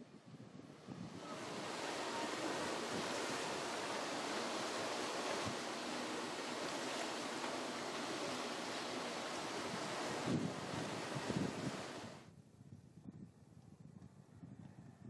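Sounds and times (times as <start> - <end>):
wind buffeting microphone: 0.0 - 15.0
sea waves breaking on rock: 1.1 - 12.3.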